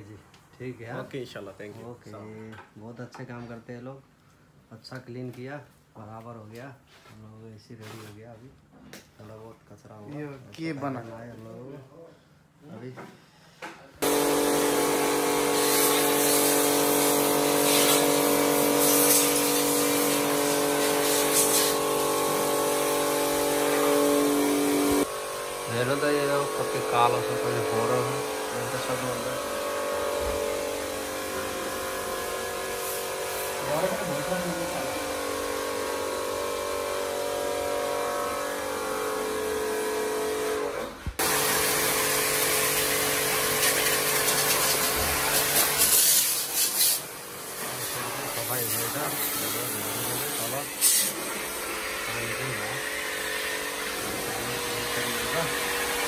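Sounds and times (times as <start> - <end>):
electric motor hum with hiss: 14.0 - 56.0
loud even hiss: 41.2 - 47.1.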